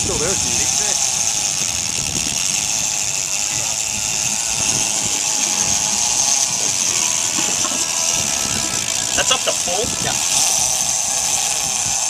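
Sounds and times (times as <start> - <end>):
boat engine running: 0.0 - 12.0
fishing reel drag buzzing: 0.0 - 12.0.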